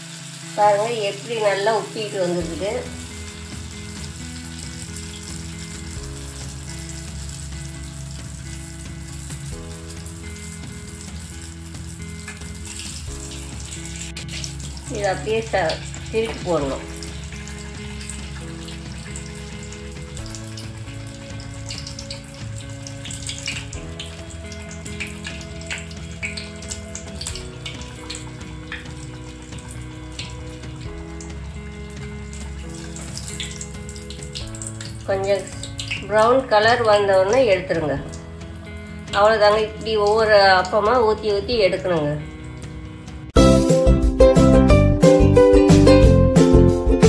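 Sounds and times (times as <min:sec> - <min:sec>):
batter deep-frying in oil: 0:00.0 - 0:43.4
background music with chords: 0:00.5 - 0:47.0.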